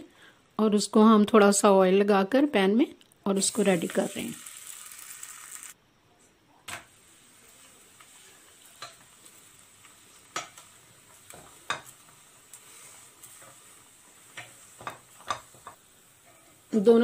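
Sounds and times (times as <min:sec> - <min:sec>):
bread sizzling in a pan: 0:03.4 - 0:05.8, 0:06.8 - 0:17.0
spatula tapping and scraping pan: 0:08.7 - 0:09.1, 0:10.2 - 0:12.2, 0:13.2 - 0:16.6.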